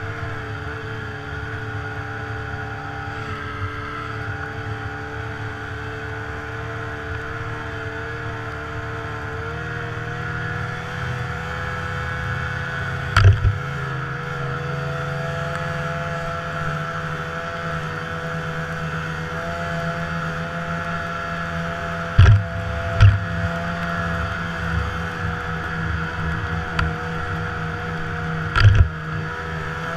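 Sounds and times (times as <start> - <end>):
snowmobile engine running: 0.0 - 29.9
sharp double thump: 13.2 - 13.6, 22.2 - 23.4.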